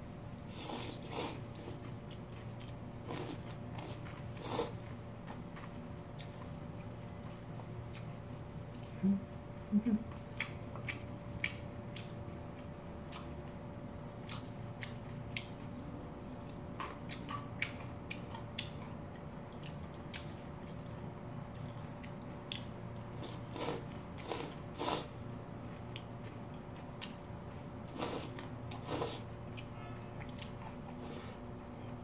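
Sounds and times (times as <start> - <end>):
chewing: 0.6 - 9.0, 10.3 - 13.6, 14.2 - 32.0
noodles slurped: 23.2 - 25.2.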